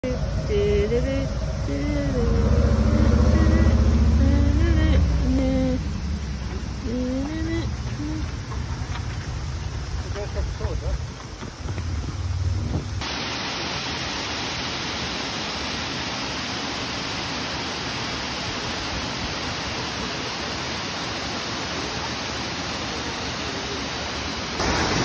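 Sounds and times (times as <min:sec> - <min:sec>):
low rumble: 0:00.0 - 0:13.0
waterfall rushing: 0:13.0 - 0:25.0.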